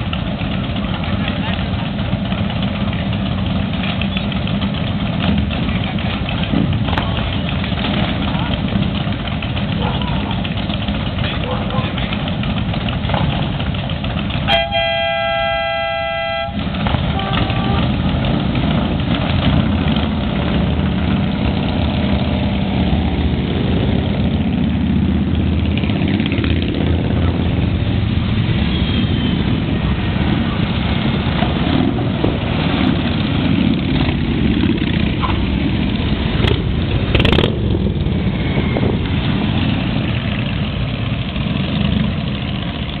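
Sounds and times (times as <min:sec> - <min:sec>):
motorcycle engines riding past: 0:00.0 - 0:43.0
horn: 0:14.5 - 0:17.9.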